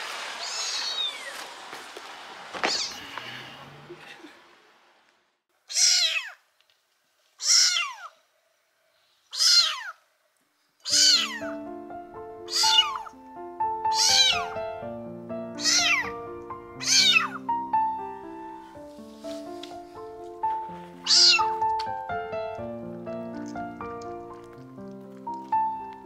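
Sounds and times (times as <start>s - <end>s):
kitten meowing: 0.4s - 1.3s, 2.6s - 3.2s, 5.7s - 6.4s, 7.4s - 8.1s, 9.3s - 10.0s, 10.8s - 11.6s, 12.5s - 13.2s, 13.9s - 14.6s, 15.5s - 16.2s, 16.8s - 17.4s, 21.0s - 21.7s
background music with held notes: 11.0s - 26.0s.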